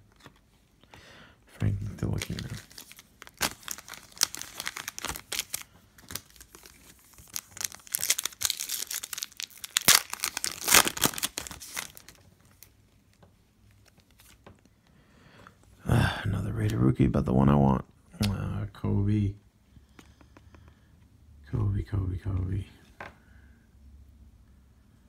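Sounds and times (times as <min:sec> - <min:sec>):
foil wrapper crinkling and tearing: 0:01.8 - 0:12.7.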